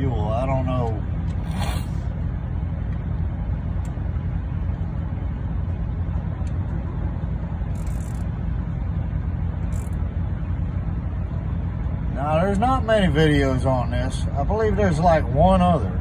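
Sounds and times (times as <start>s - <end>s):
diesel engine running steadily: 0.0s - 16.0s.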